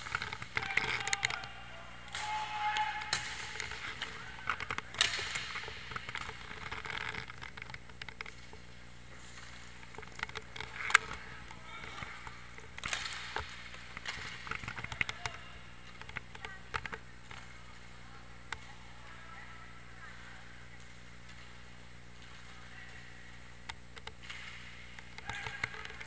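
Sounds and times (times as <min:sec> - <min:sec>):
hockey sticks and puck clacking: 0:00.0 - 0:19.2, 0:20.1 - 0:26.0
distant players shouting: 0:00.5 - 0:05.2.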